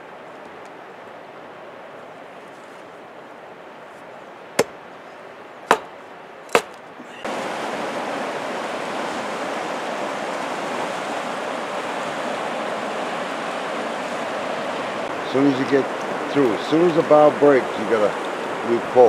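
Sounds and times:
river rapids rushing: 3.2s - 19.0s
axe chopping wood on stump: 5.7s - 5.9s, 6.5s - 6.8s.

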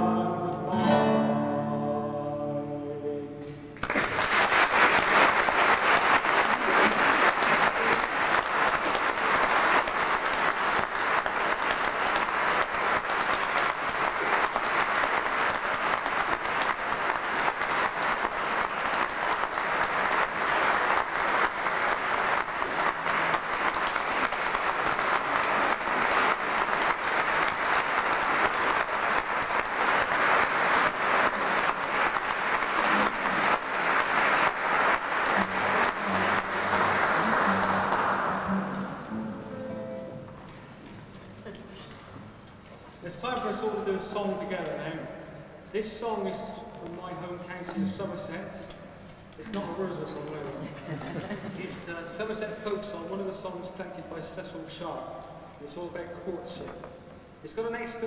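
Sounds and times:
classical guitar and voice: 0.0s - 3.7s
audience applauding: 3.8s - 43.8s, 49.1s - 52.8s.

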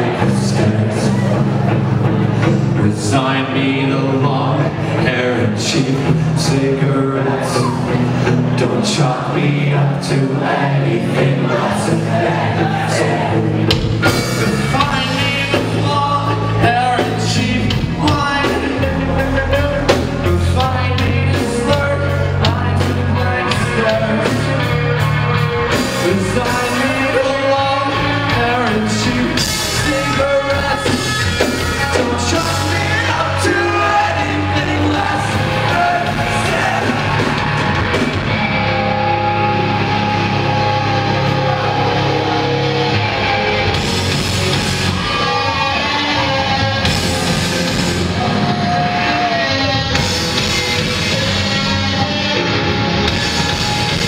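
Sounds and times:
live rock band playing: 0.0s - 54.0s
person singing: 14.4s - 50.2s.

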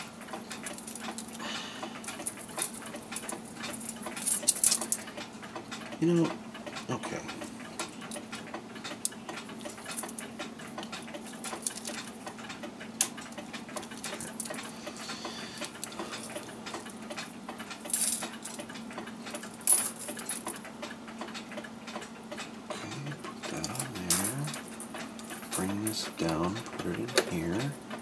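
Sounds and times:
metal parts clicking and rustling: 0.0s - 1.4s, 2.0s - 5.2s, 7.8s - 14.7s, 15.6s - 20.7s, 23.6s - 28.0s
faint steady hum: 0.0s - 28.0s.

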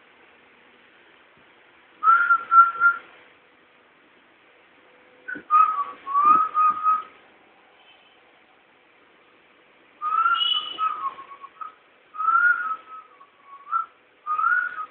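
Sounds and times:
person whistling a tune: 2.0s - 3.0s, 5.3s - 7.1s, 10.0s - 14.9s.

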